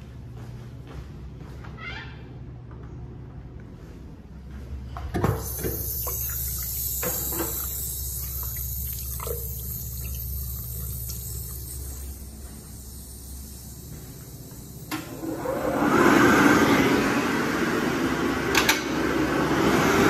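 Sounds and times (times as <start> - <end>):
water running into steel sink: 5.2 - 15.1.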